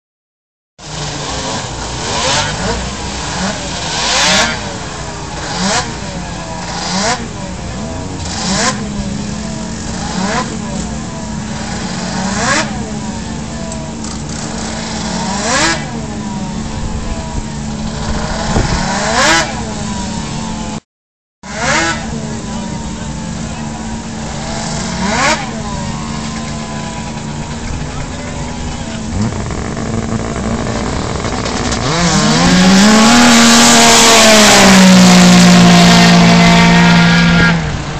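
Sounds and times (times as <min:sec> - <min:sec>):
snowmobile engines revving: 0:00.8 - 0:20.8, 0:21.5 - 0:37.9.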